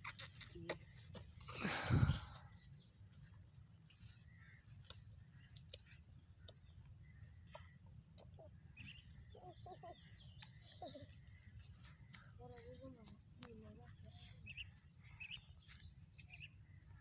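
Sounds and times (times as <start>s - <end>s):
faint bird chirps: 4.1s - 17.0s.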